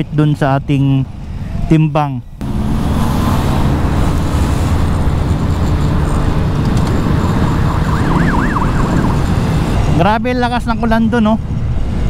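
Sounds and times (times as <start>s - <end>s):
road noise: 0.0s - 12.0s
wind rush: 2.4s - 12.0s
faint siren: 6.8s - 9.7s.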